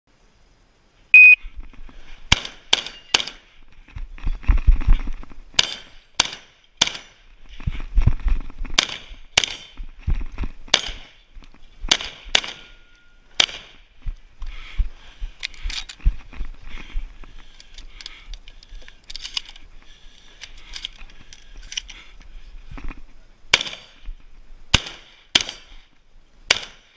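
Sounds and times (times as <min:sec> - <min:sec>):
shot timer beep: 0:01.1 - 0:01.4
shotgun shots: 0:08.8 - 0:09.8, 0:10.7 - 0:11.2, 0:11.9 - 0:12.7, 0:13.4 - 0:13.8, 0:23.5 - 0:24.0, 0:24.7 - 0:25.8, 0:26.5 - 0:26.9
rustling and handling noise: 0:12.7 - 0:23.4.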